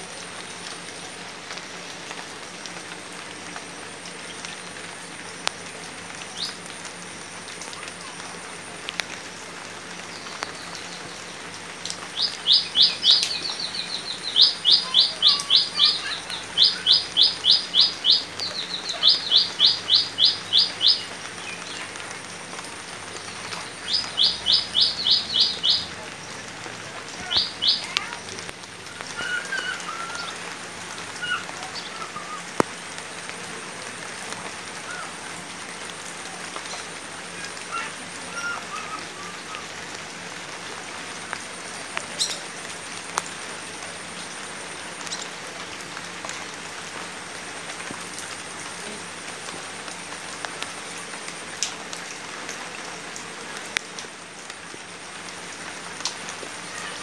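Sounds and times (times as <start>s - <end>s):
light rain on water and leaves: 0.0s - 57.0s
water drips: 0.1s - 57.0s
birds chirping: 12.1s - 22.0s, 23.2s - 26.1s, 27.0s - 28.2s.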